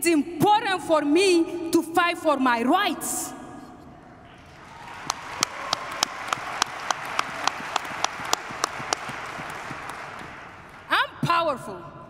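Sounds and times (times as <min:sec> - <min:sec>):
audience applauding: 0:04.4 - 0:10.9
single loud claps: 0:04.8 - 0:10.8.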